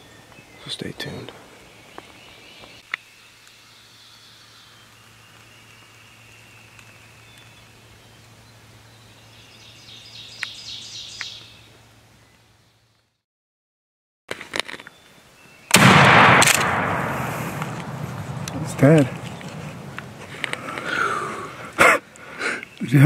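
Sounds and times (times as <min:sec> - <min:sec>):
faint high bird song: 0:00.0 - 0:13.0, 0:14.8 - 0:15.8, 0:22.6 - 0:23.0
sharp clicks: 0:15.7 - 0:20.9.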